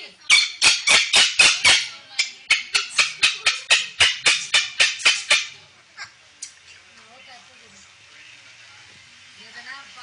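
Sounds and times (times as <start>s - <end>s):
cockatoo screeching: 0.3s - 1.9s, 2.5s - 6.1s.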